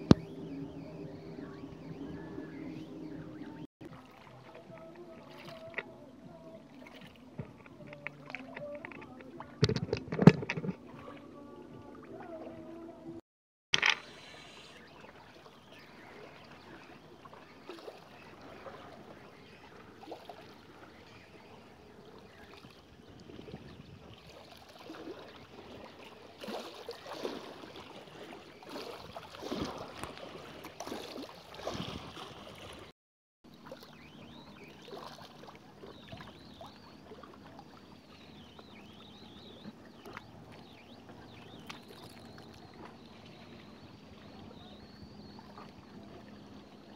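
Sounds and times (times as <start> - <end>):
water lapping against rocks: 13.8 - 32.9, 33.5 - 46.9.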